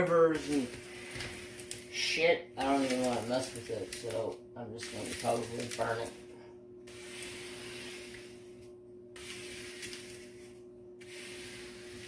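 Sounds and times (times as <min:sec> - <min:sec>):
hand rubbing plastic film: 0:09.2 - 0:10.4.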